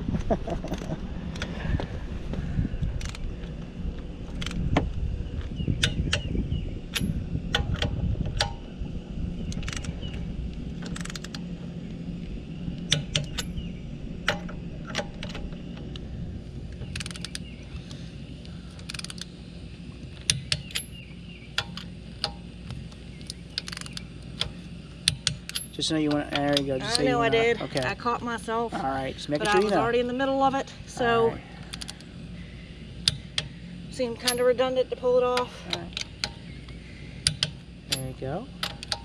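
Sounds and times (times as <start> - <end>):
low rumble: 0.0 - 26.0
socket wrench clicking on lug nuts: 3.0 - 3.2, 4.3 - 4.6, 5.8 - 6.3, 6.9 - 8.6, 9.5 - 9.9, 10.8 - 11.4, 12.9 - 13.5, 16.8 - 17.5, 18.8 - 19.3, 20.2 - 26.6, 33.0 - 33.5, 37.2 - 39.0.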